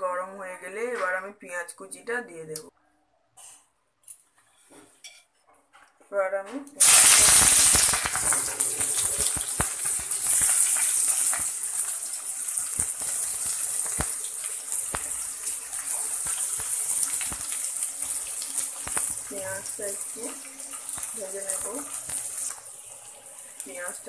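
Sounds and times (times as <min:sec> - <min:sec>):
oil popping and crackling: 0:06.8 - 0:24.0
onion sizzling in hot oil: 0:06.8 - 0:24.0.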